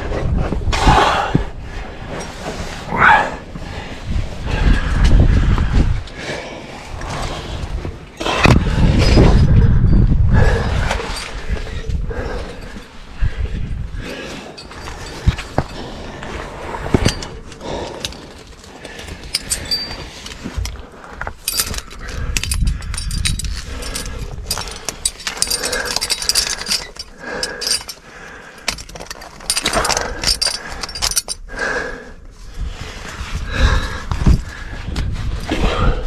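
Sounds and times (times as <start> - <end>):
hard breathing: 3.1 - 36.0
climbing hardware clinking: 9.0 - 13.0, 14.0 - 31.5.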